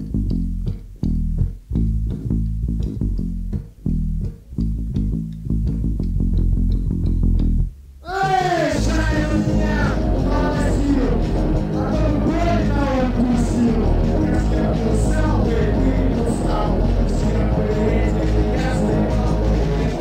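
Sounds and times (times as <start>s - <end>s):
bass guitar riff: 0.0s - 20.0s
person singing: 8.0s - 20.0s
rock band playing: 8.2s - 20.0s.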